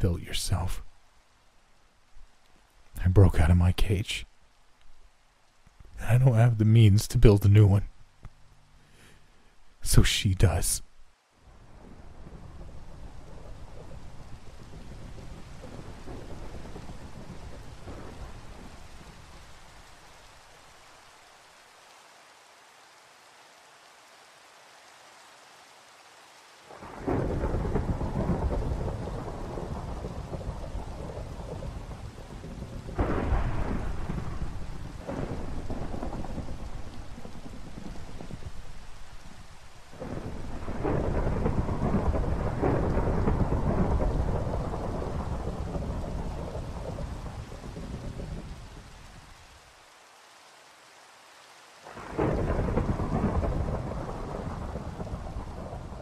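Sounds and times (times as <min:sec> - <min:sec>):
steady rain: 0:00.0 - 0:56.0
thunder rumbling: 0:11.6 - 0:19.4, 0:26.7 - 0:49.2, 0:51.9 - 0:56.0.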